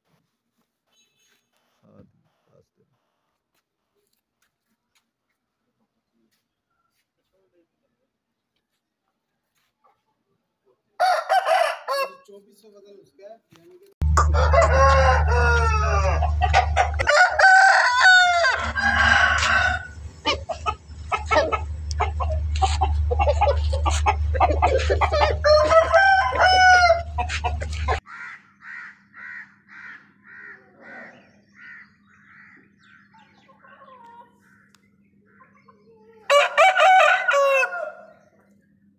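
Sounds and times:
roosters crowing: 11.0s - 12.3s, 14.0s - 33.2s, 36.2s - 38.4s
low rumble: 14.0s - 17.4s, 18.3s - 28.0s
rooster clucks: 14.0s - 31.8s
short evenly spaced calls: 18.6s - 30.5s.

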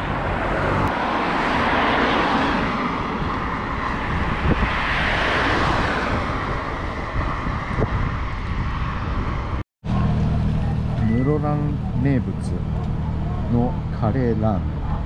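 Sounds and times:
road traffic: 0.0s - 15.0s
bicycle tyres rumbling on asphalt: 1.0s - 10.7s
wind on microphone: 2.6s - 9.6s.

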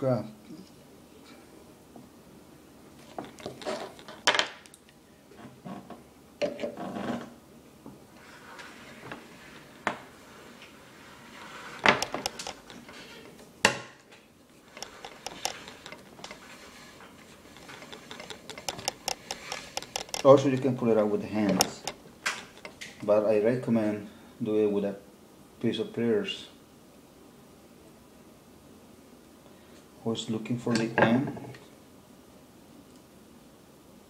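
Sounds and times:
wire scraping and rustling: 3.0s - 4.7s, 8.1s - 23.1s
metallic clicks and knocks: 11.8s - 13.0s, 14.7s - 16.6s, 17.5s - 20.8s, 21.5s - 23.0s.

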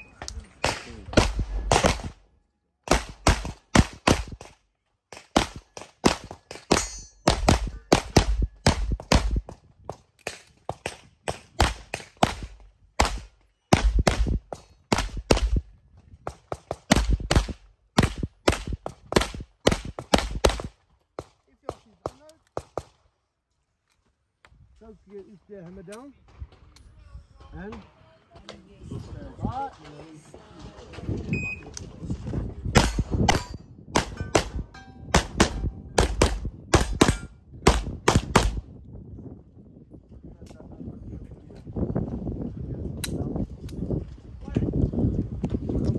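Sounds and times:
rapid gunshots: 0.6s - 2.2s, 5.2s - 9.5s, 35.2s - 38.6s.

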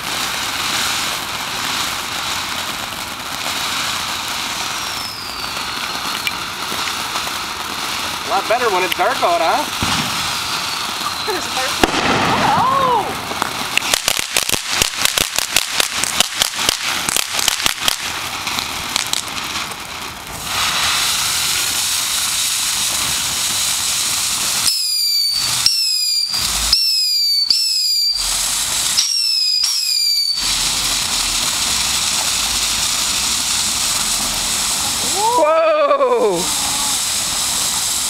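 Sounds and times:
firework crackling pops: 0.0s - 38.0s
firework hissing: 0.0s - 38.0s
short high falling whistles: 4.8s - 6.3s, 10.3s - 11.6s, 24.6s - 30.6s.

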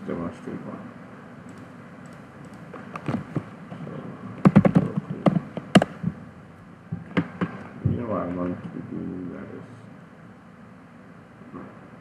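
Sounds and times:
computer keyboard typing: 1.5s - 3.4s, 4.4s - 5.9s.

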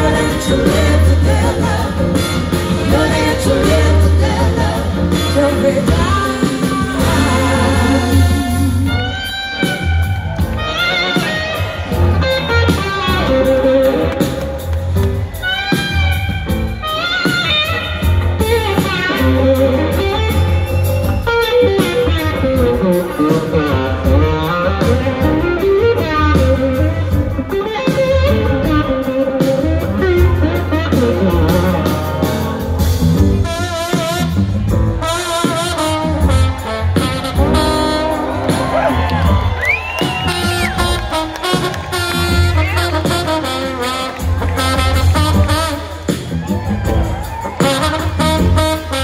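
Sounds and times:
live blues-rock band: 0.0s - 49.0s.

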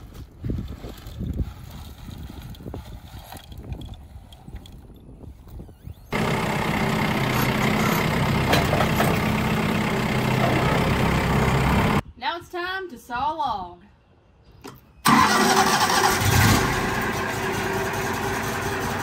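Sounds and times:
tractor diesel engine running: 6.1s - 12.0s, 15.1s - 19.0s.

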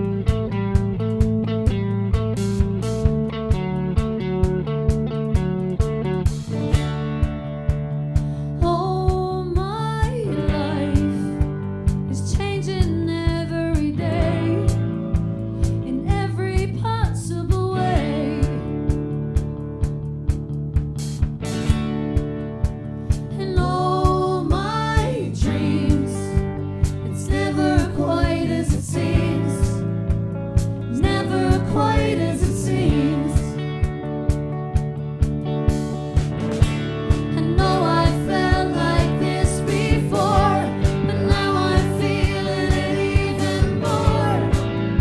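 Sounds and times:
drum kit beat: 0.0s - 45.0s
electric bass: 0.0s - 45.0s
electric guitar: 0.0s - 45.0s
woman singing: 8.6s - 14.9s, 15.8s - 18.8s, 23.3s - 29.9s, 30.9s - 33.6s, 37.3s - 44.6s
person singing: 23.4s - 26.4s, 30.9s - 33.6s, 37.3s - 44.6s.

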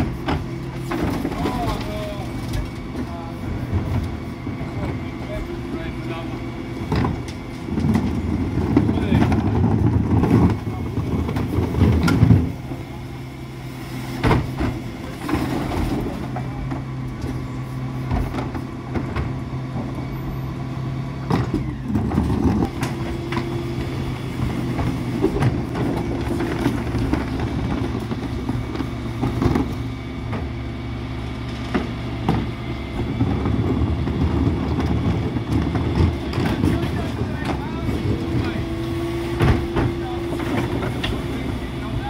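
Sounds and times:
truck diesel engine running: 0.0s - 42.0s
plastic bins knocking and clattering: 6.8s - 12.6s.

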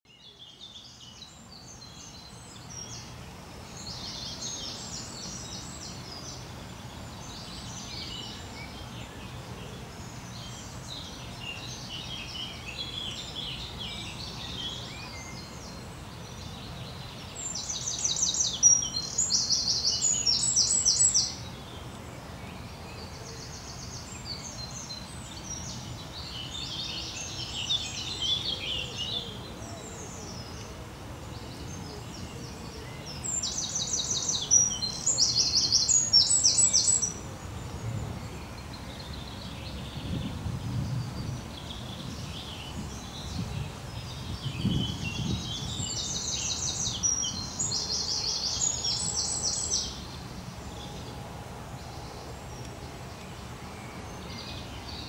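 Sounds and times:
songbirds chirping: 0.0s - 55.0s
nearby bird fast song: 0.1s - 55.0s.

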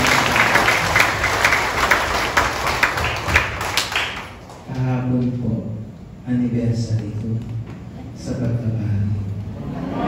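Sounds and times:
congregation applauding: 0.0s - 4.9s.

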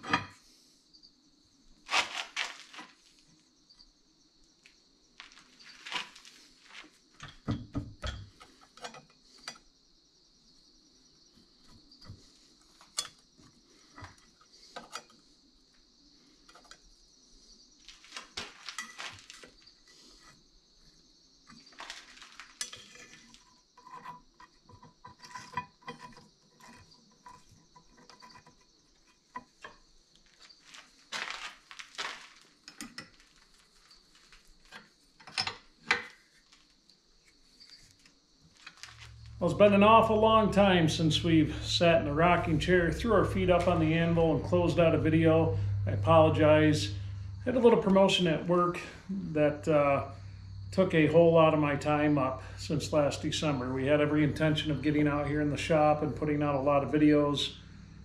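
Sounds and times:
metallic clinks and scrapes: 18.0s - 20.4s, 21.5s - 39.4s.

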